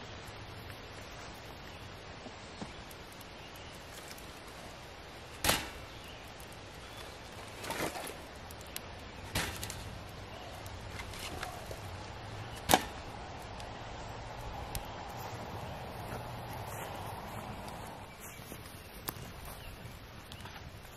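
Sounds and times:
wood fire burning: 0.0s - 20.9s
firewood logs knocking: 5.3s - 13.8s.

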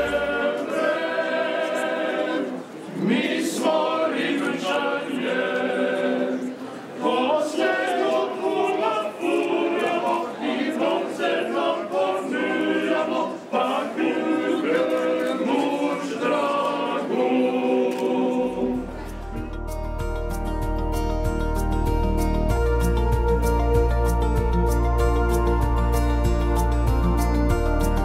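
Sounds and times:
choir singing: 0.0s - 19.5s
instrumental music with deep bass: 18.9s - 28.0s.

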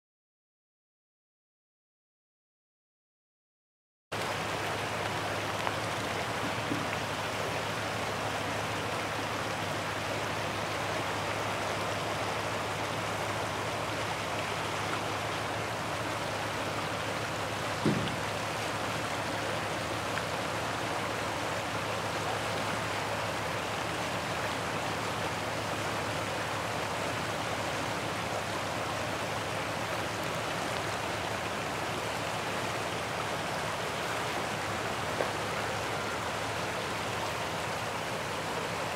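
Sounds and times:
river water rushing over riffle: 4.2s - 38.9s
brief thump: 17.8s - 18.4s.

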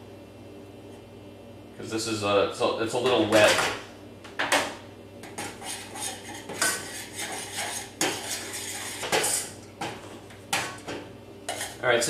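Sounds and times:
spoon scraping saucepan: 5.2s - 9.6s, 11.5s - 11.8s.

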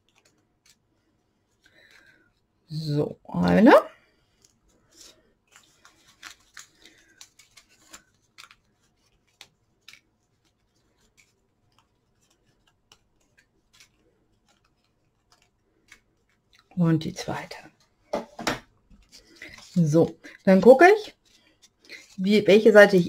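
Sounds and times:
cardstock crackling and clicking: 4.4s - 16.8s.

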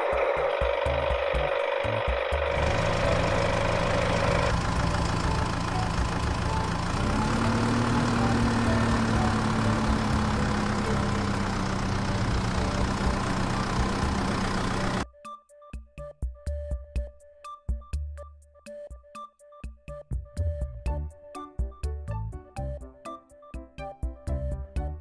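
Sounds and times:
engine idling: 0.0s - 15.0s.

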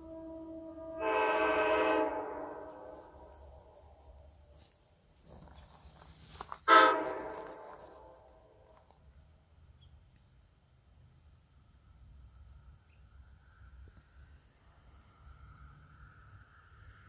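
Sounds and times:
air horn blasts: 0.0s - 3.8s, 6.6s - 8.1s.

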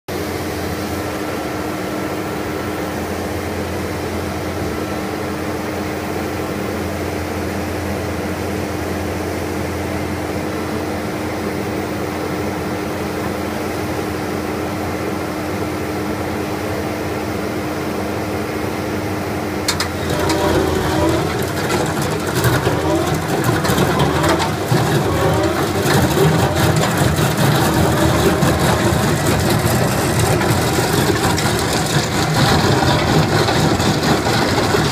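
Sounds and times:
trencher engine running: 19.6s - 34.9s
rock saw grinding clatter: 19.7s - 34.9s.

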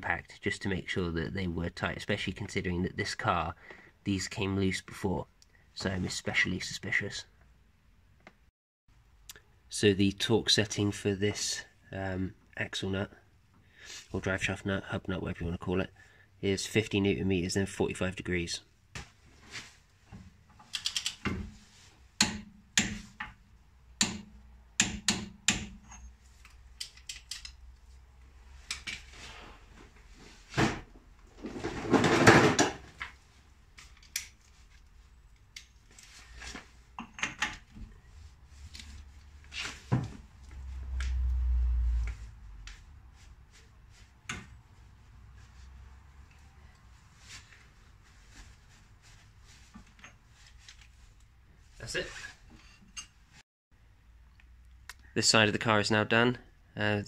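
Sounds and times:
hand tools clicking on metal: 24.8s - 27.6s.

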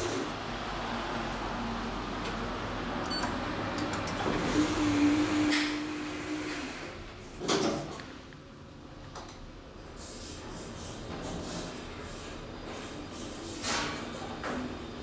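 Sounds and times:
sliding doors closing with thud: 2.1s - 8.0s.

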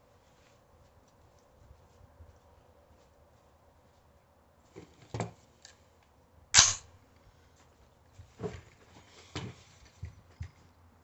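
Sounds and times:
rifle shots: 6.6s - 6.9s.

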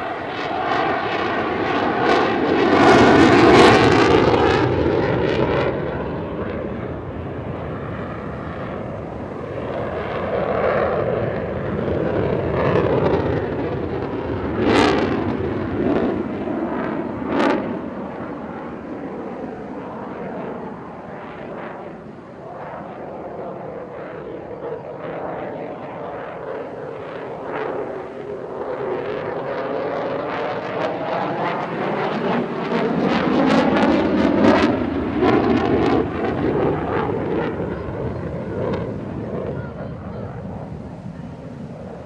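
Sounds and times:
jet engines roaring: 0.0s - 42.0s.

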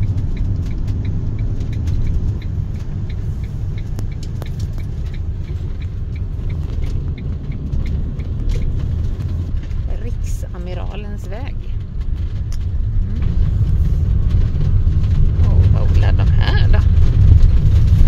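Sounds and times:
engine and tyre rumble: 0.0s - 18.0s
light regular ticking: 0.0s - 18.0s.

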